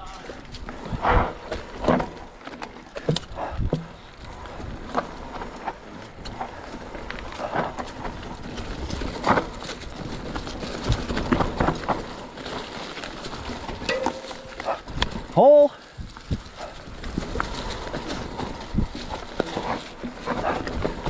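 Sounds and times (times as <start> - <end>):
bike tyres rolling on dirt: 0.0 - 21.0
bike clattering over bumps: 0.5 - 15.3.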